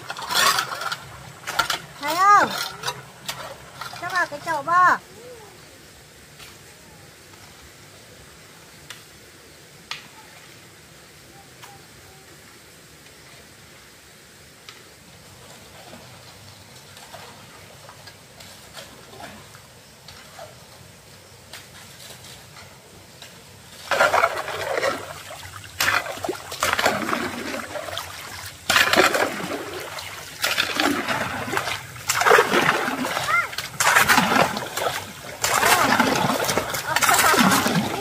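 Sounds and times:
faint water noise: 0.0 - 38.0
loud water splashes: 23.8 - 38.0.

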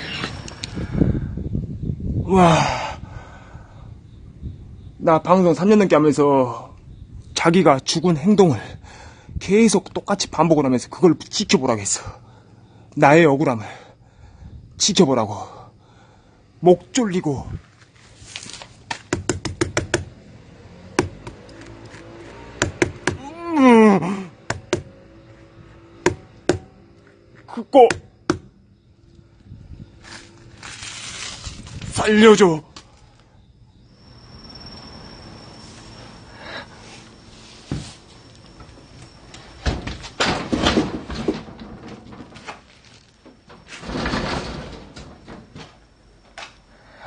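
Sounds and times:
hand tapping near microphone: 19.1 - 20.1
knocks and clattering rattles: 39.6 - 46.4.

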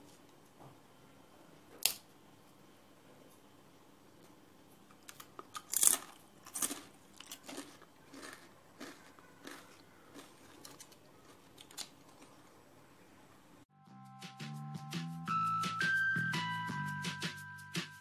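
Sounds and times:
potato chips crunching: 5.0 - 12.6.

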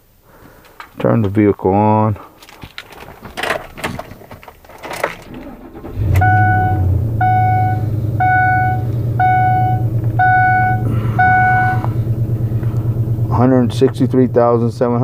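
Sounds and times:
truck engine starting and idling: 2.8 - 15.0
dashboard warning chime: 6.0 - 11.9.

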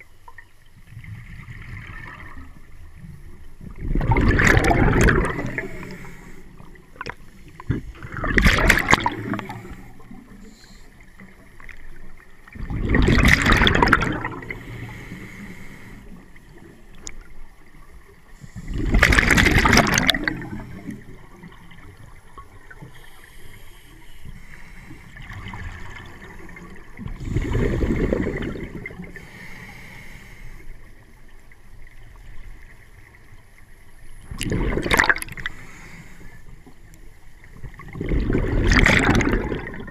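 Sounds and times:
water noise: 0.0 - 39.9
exhaled breath bubbling underwater: 3.7 - 11.2, 12.5 - 17.0, 18.4 - 21.6, 22.7 - 30.6, 34.2 - 36.6, 37.7 - 39.9.

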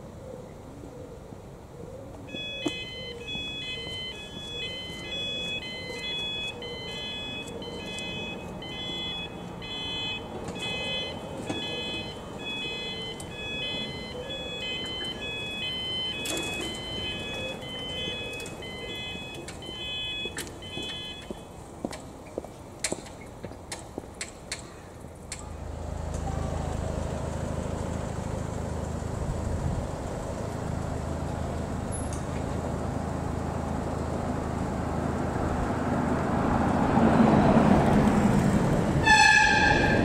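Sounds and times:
level crossing two-tone alarm: 2.3 - 21.5.

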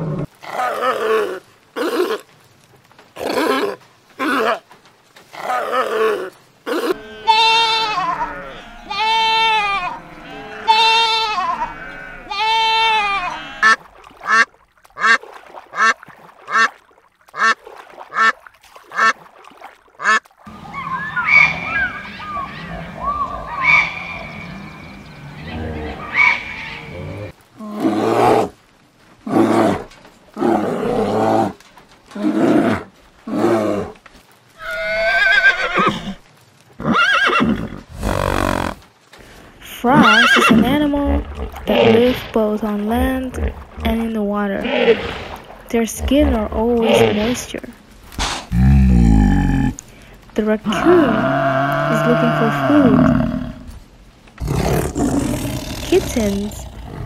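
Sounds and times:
goat kid bleating: 6.9 - 13.8
zebra barking brays: 20.0 - 24.8.

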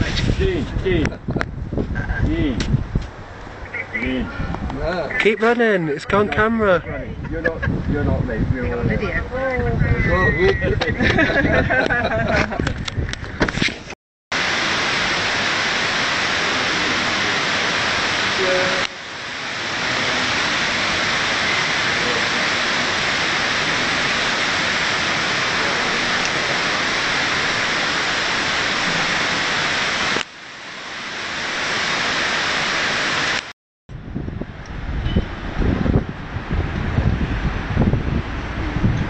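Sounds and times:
rushing falling water: 3.4 - 13.5, 14.3 - 33.5.

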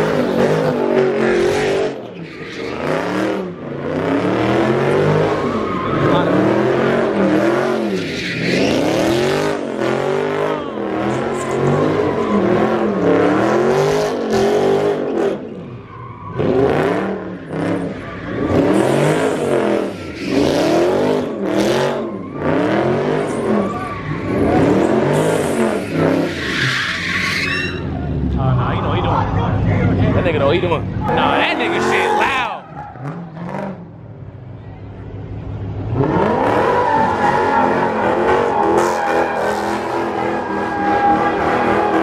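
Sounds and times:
tire squeal: 0.0 - 28.3, 31.0 - 33.6, 36.0 - 42.0
car engine revving: 0.0 - 34.4, 35.3 - 42.0.

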